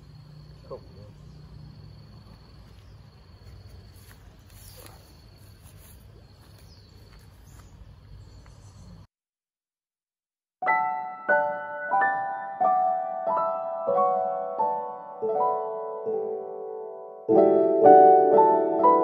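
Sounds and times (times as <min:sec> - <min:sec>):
insect trilling: 0:00.0 - 0:06.9.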